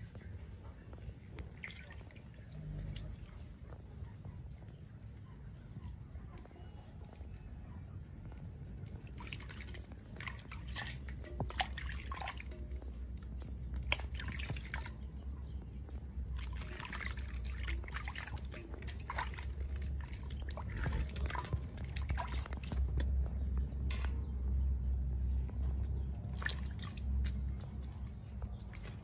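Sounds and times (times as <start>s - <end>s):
low steady hum: 0.0s - 29.0s
water splashing in a steel basin: 1.2s - 3.5s, 9.0s - 23.7s, 25.9s - 29.0s.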